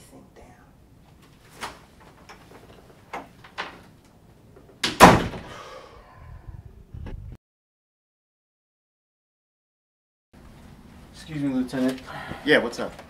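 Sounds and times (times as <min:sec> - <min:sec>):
door slamming shut: 0:04.8 - 0:05.6.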